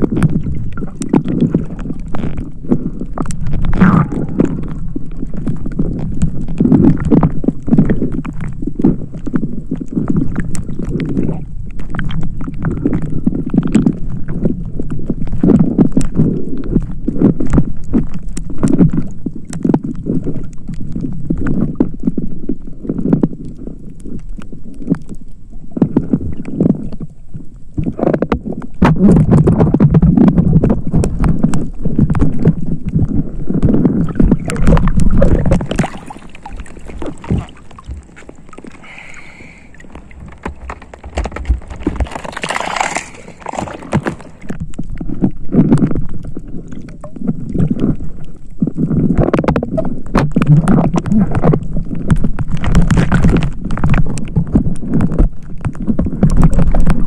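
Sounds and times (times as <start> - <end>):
water sloshing and gurgling: 0.0 - 57.0
hissing rush of water: 35.6 - 40.4
clicks and knocks: 39.8 - 44.6.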